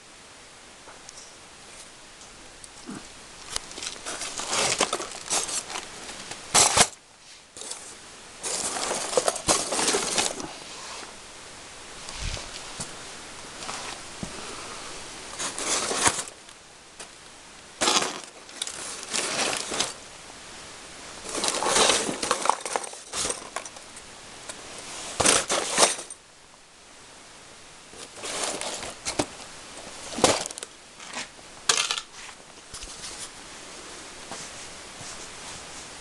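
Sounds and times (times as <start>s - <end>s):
fishing floats rattling in boxes: 3.7s - 5.8s, 7.6s - 10.4s, 15.4s - 16.4s, 17.8s - 20.0s, 21.2s - 23.8s, 25.2s - 26.1s.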